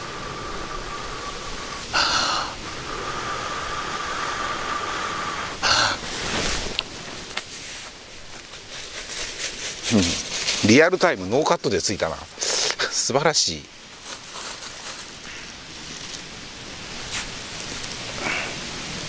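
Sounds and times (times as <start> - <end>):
sharp inhale: 0.0 - 6.0.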